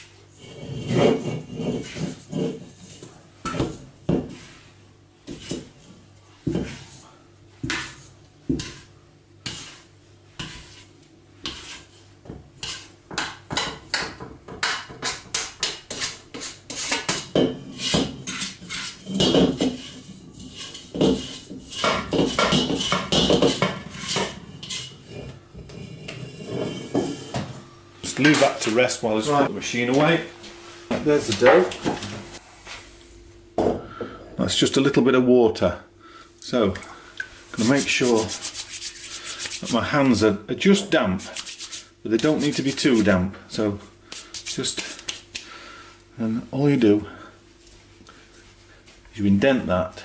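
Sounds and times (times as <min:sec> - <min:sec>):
metal bowl knocking and scraping: 0:00.4 - 0:04.4, 0:12.6 - 0:27.6.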